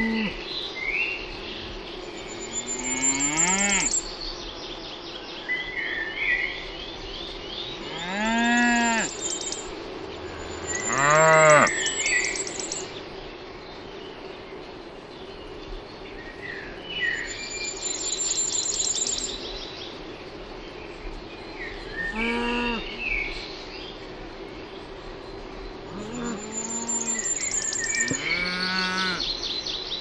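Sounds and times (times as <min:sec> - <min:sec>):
birds chirping: 0:00.0 - 0:30.0
cattle mooing: 0:10.6 - 0:11.8, 0:25.9 - 0:27.2, 0:28.1 - 0:29.2.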